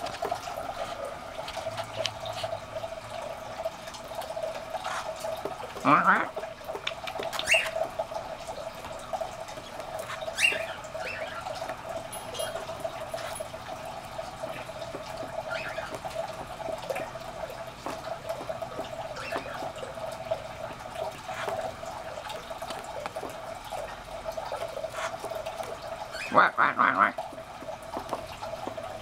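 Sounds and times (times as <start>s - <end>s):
cockatiel chicks calling: 7.4s - 7.7s, 10.3s - 11.6s.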